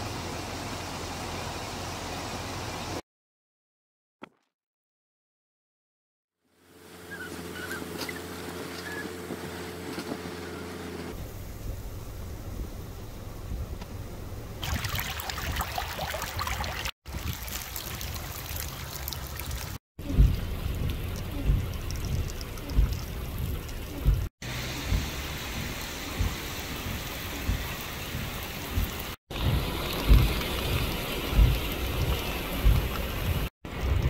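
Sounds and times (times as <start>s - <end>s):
floodwater rushing over sand: 14.6s - 34.0s
low thumps: 20.0s - 34.0s.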